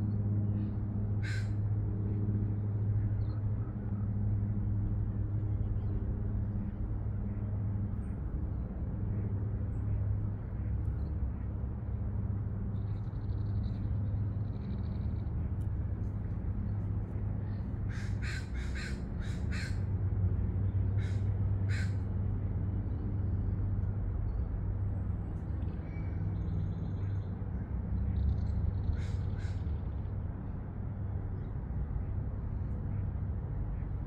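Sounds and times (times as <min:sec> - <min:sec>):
low background rumble: 0:00.0 - 0:34.0
crow cawing: 0:01.2 - 0:01.6, 0:17.9 - 0:19.8, 0:21.0 - 0:22.0, 0:29.0 - 0:29.6.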